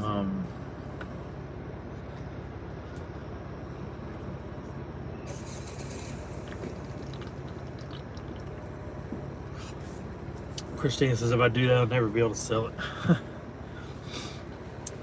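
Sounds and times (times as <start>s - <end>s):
car engine idling: 0.0s - 15.0s
short hiss: 5.3s - 7.0s.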